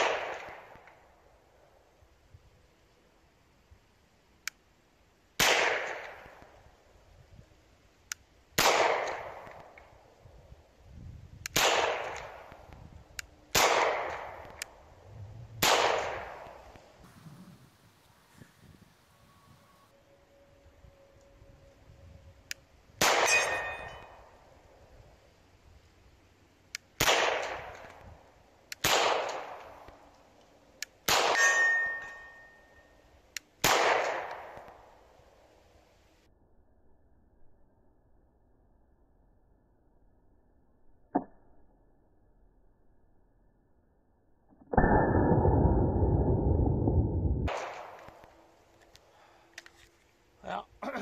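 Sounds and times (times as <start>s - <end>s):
pistol shots with echo: 5.4s - 6.2s, 8.6s - 9.5s, 11.6s - 12.5s, 13.5s - 14.5s, 15.6s - 16.6s, 23.0s - 24.1s, 27.0s - 27.8s, 28.8s - 29.8s, 31.1s - 32.5s, 33.6s - 34.6s
steel target ringing: 23.0s - 24.4s, 31.4s - 32.9s.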